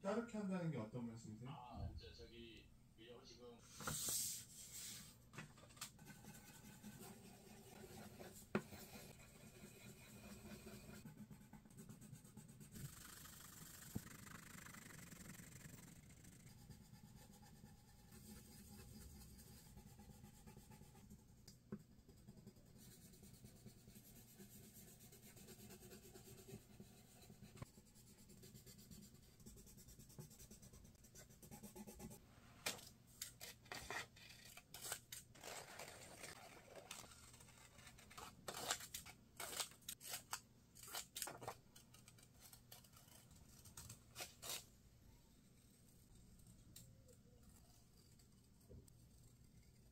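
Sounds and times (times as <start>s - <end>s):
pencil scratching on paper: 6.0s - 32.2s, 33.4s - 40.0s
scissors snipping paper: 33.2s - 44.6s.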